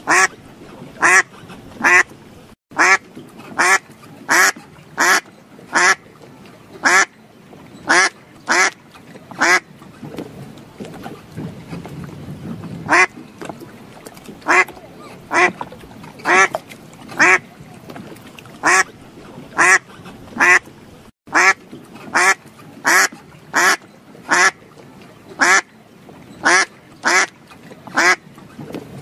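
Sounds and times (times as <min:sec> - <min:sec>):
duck quacking: 0:00.1 - 0:00.3, 0:01.0 - 0:02.1, 0:02.8 - 0:06.0, 0:06.8 - 0:07.1, 0:07.9 - 0:08.8, 0:09.4 - 0:09.6, 0:12.9 - 0:13.1, 0:14.4 - 0:14.7, 0:15.3 - 0:15.5, 0:16.2 - 0:16.5, 0:17.2 - 0:17.4, 0:18.6 - 0:18.9, 0:19.6 - 0:19.8, 0:20.4 - 0:20.6, 0:21.3 - 0:24.6, 0:25.4 - 0:25.6, 0:26.4 - 0:27.3, 0:27.9 - 0:28.2.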